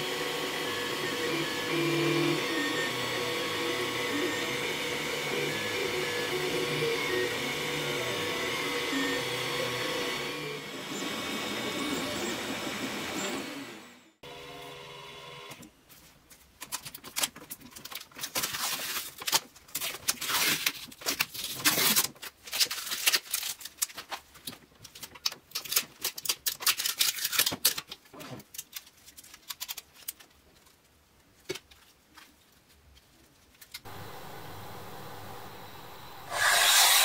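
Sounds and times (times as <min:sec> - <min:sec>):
printer motor whine: 0:00.0 - 0:15.6, 0:33.9 - 0:37.0
stepper motors clicking: 0:33.9 - 0:37.0.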